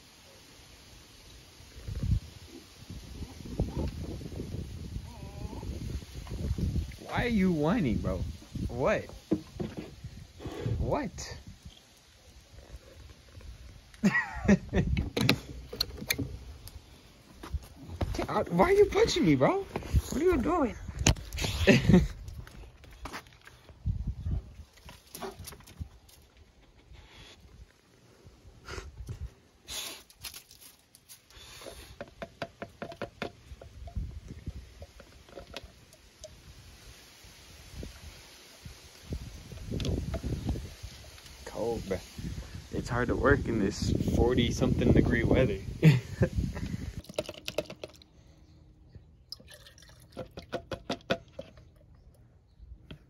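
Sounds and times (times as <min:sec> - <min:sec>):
handling rustle: 0:29.8 - 0:32.0
quick drips and light knocks: 0:32.0 - 0:36.4, 0:49.3 - 0:52.2
small quick drips and splashes: 0:49.3 - 0:50.6
oil pouring into plastic can: 0:49.3 - 0:51.7.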